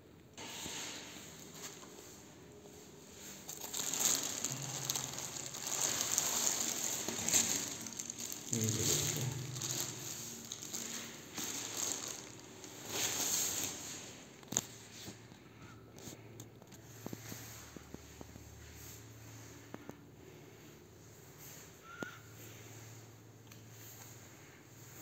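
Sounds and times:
plastic bag crinkling: 0:03.2 - 0:14.7.

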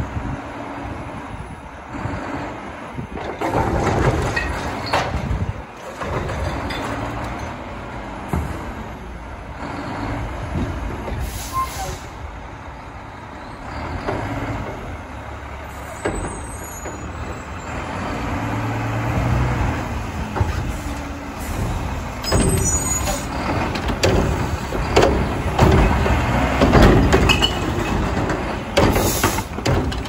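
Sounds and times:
diesel truck engine running: 0:00.0 - 0:30.0
air brake hiss: 0:11.2 - 0:12.2
cart arm clunks and knocks: 0:20.2 - 0:30.0.

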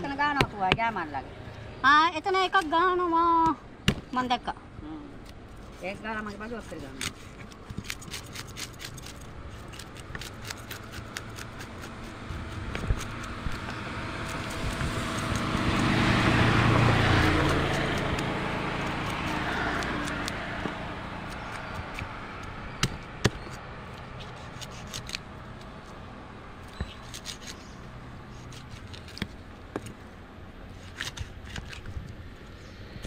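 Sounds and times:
vehicle driving past: 0:11.9 - 0:23.8.

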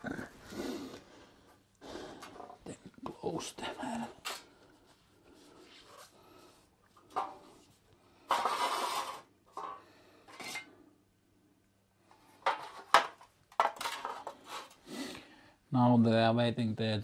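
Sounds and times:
metal tray scraping on tile: 0:08.2 - 0:10.7, 0:12.4 - 0:14.8.

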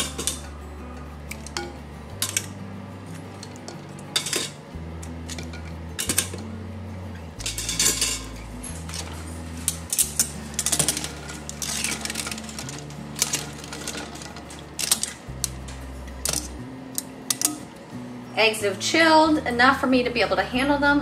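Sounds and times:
background music with bass notes: 0:00.0 - 0:21.0
eggs clinking against ice and glass: 0:07.4 - 0:15.6.

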